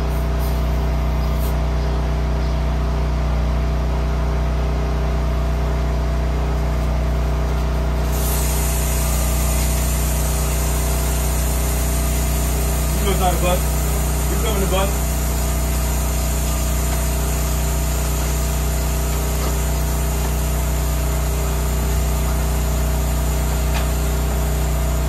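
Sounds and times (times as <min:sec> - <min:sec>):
machine humming: 0:05.3 - 0:25.0
high hiss: 0:08.0 - 0:25.0.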